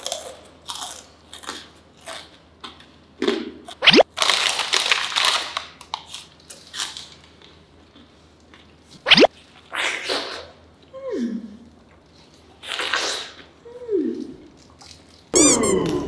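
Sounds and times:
crunchy snack chewing: 0:00.0 - 0:02.9, 0:14.5 - 0:16.0.

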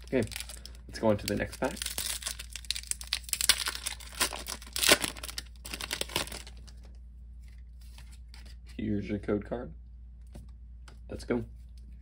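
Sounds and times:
foil wrapper crinkling: 0:00.0 - 0:06.9.

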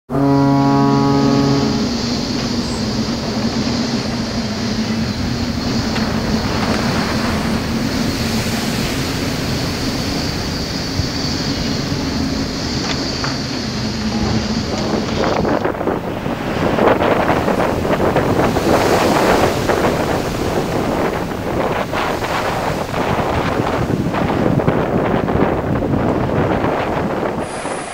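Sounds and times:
held synth chord: 0:00.0 - 0:04.8
boat engine droning: 0:00.0 - 0:27.9
sea noise: 0:00.0 - 0:27.9
rushing wind: 0:00.1 - 0:27.9.

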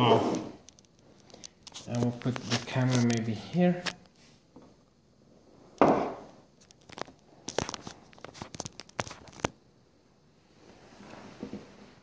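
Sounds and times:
soft rustle: 0:10.4 - 0:12.0.

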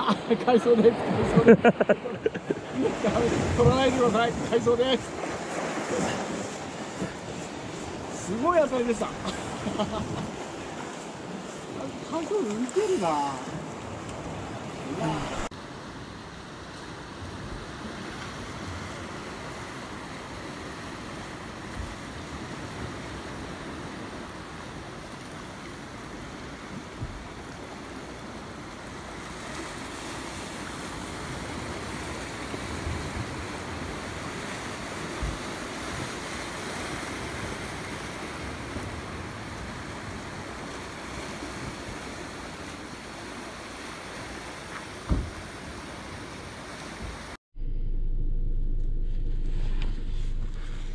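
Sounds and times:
surf washing over rocks: 0:00.0 - 0:47.4
low bumps: 0:47.5 - 0:50.9.

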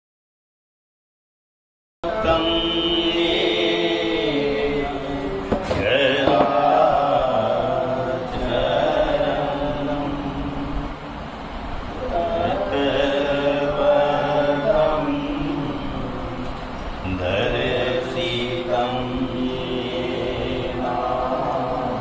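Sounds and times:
devotional chanting: 0:02.0 - 0:22.0.

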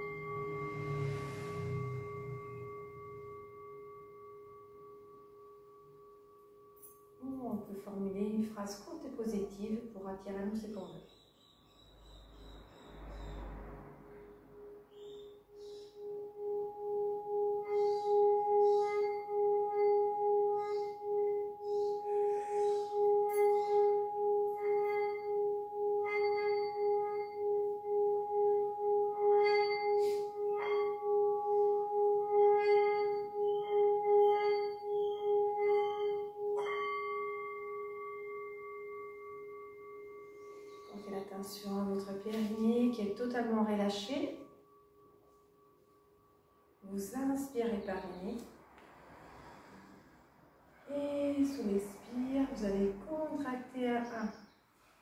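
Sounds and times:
singing bowl struck: 0:00.0 - 0:07.2, 0:14.9 - 0:46.8
singing bowl humming: 0:00.0 - 0:08.4, 0:14.6 - 0:48.5.

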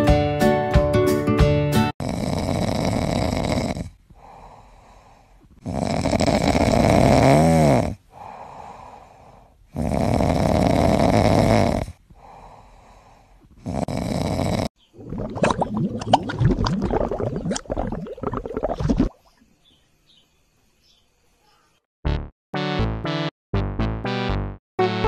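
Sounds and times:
loud snoring: 0:02.0 - 0:04.8, 0:05.6 - 0:14.8
soft breaths: 0:03.8 - 0:05.6, 0:08.0 - 0:09.8, 0:11.8 - 0:13.9.

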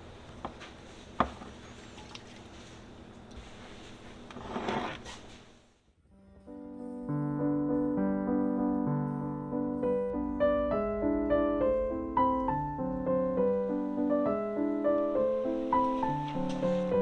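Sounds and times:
gentle piano music: 0:06.1 - 0:17.0.

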